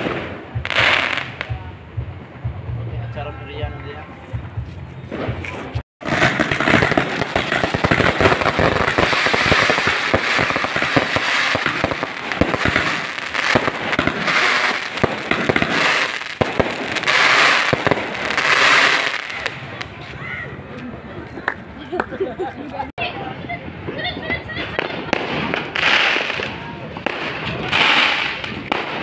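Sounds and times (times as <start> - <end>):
fireworks cracking and popping: 0.0 - 1.6, 5.1 - 20.0, 23.8 - 29.0.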